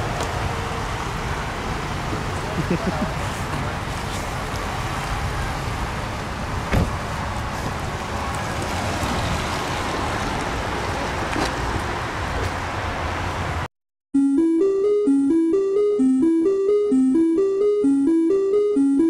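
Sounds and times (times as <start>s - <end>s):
road traffic rumble: 0.0s - 13.7s.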